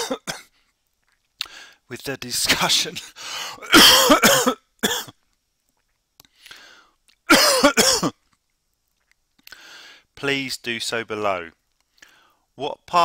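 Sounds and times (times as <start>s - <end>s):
person coughing: 0.0s - 0.5s, 3.6s - 5.1s, 7.3s - 8.2s.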